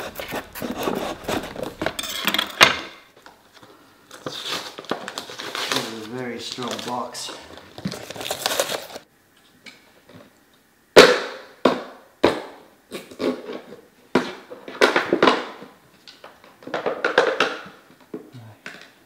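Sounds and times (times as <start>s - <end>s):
packaging crunching and rustling: 4.1s - 9.1s.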